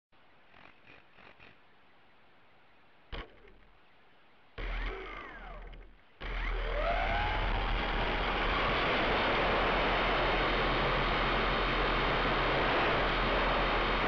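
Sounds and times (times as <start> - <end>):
electric motor and propeller whining: 4.6 - 14.0
steady hiss: 7.9 - 14.0.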